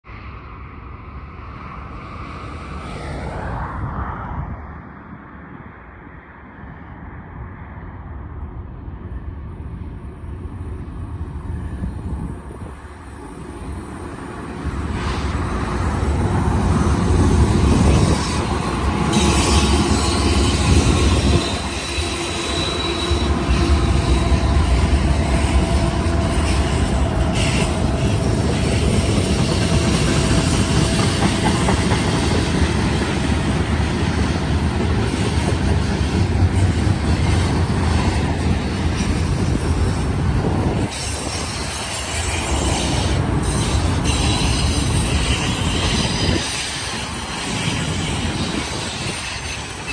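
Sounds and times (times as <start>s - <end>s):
diesel locomotives passing: 0.1s - 49.9s
steel wheels rumbling and squealing: 10.7s - 49.9s.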